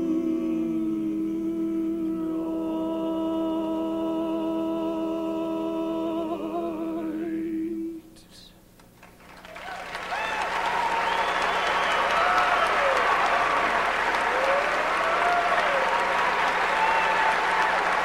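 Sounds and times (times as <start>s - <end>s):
male vocal quartet chord: 0.0s - 8.2s
audience applause: 9.0s - 18.0s.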